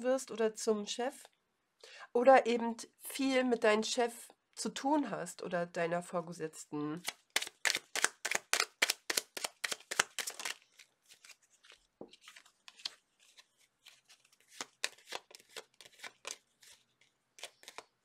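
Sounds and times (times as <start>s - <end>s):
cards being shuffled: 7.0s - 18.0s.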